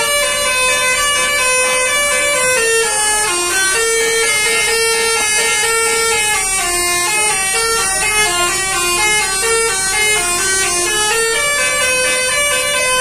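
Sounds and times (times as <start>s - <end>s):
bus musical horn tune: 0.0s - 13.0s.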